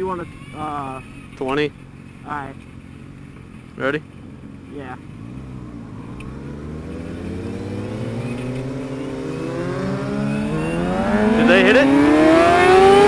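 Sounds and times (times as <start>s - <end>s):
motorcycle engine accelerating: 2.8s - 13.0s.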